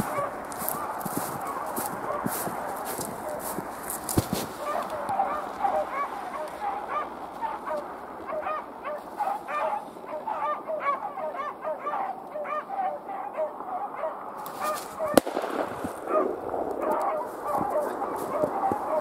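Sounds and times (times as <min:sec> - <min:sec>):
dogs baying: 0:00.0 - 0:19.0
gunshot: 0:15.1 - 0:18.1.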